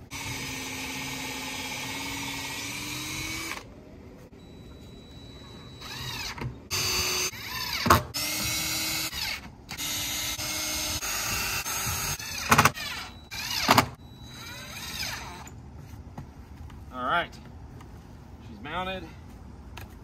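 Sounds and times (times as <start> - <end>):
cordless drill drilling into plywood: 0.1 - 3.7, 5.8 - 15.5.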